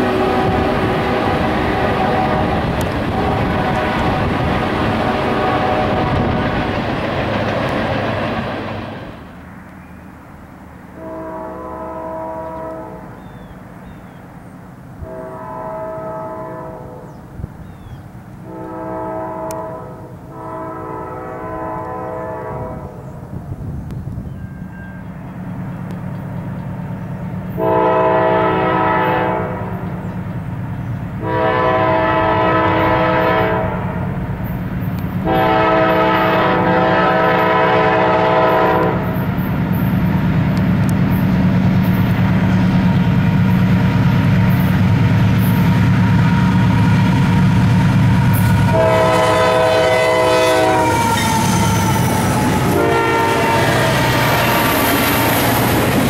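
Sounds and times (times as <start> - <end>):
locomotive horn blasts: 0.0 - 6.8, 11.0 - 13.2, 15.0 - 17.2, 18.4 - 23.0, 27.5 - 30.0, 31.2 - 34.1, 35.2 - 39.3, 48.2 - 54.6
locomotive engines rumbling: 0.0 - 56.0.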